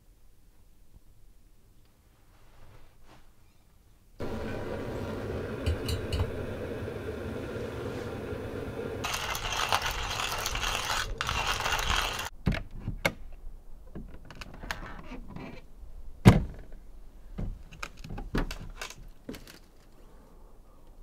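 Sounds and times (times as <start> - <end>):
hand coffee grinder grinding: 9.0 - 12.3.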